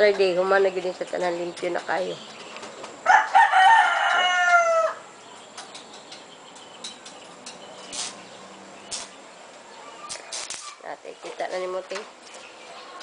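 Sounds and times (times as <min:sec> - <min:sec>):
rooster crowing: 0:03.0 - 0:05.1.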